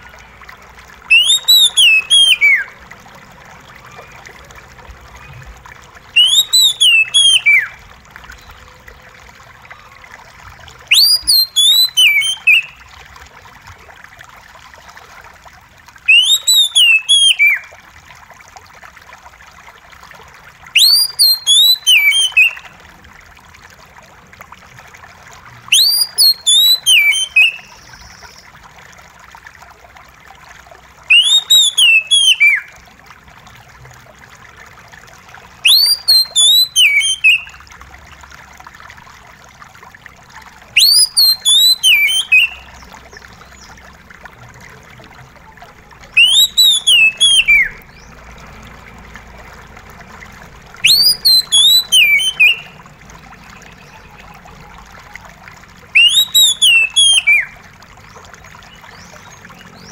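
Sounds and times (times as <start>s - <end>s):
running water trickling: 0.0s - 59.9s
bird singing whistled phrases: 1.1s - 2.8s, 6.2s - 7.8s, 10.9s - 12.8s, 16.1s - 17.7s, 20.8s - 22.7s, 25.7s - 28.5s, 31.1s - 32.7s, 35.6s - 37.6s, 40.8s - 42.8s, 46.1s - 48.0s, 50.8s - 52.8s, 55.9s - 57.6s.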